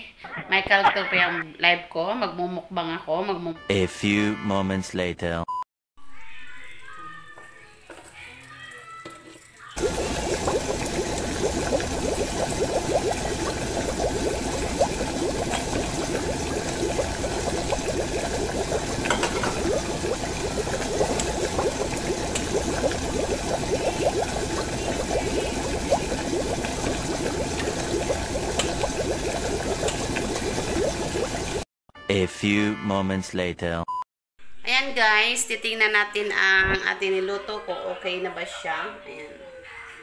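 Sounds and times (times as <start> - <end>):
broth boiling and bubbling: 9.8 - 31.7.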